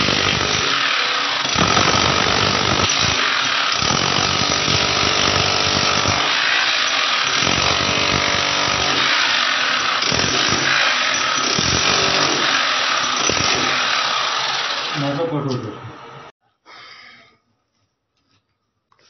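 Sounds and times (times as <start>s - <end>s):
electric hammer chipping concrete: 0.0s - 15.2s.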